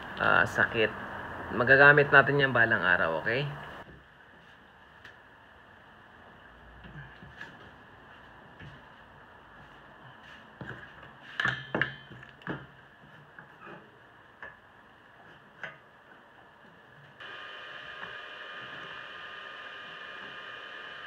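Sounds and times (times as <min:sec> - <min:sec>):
hum with high whine: 0:16.7 - 0:21.0.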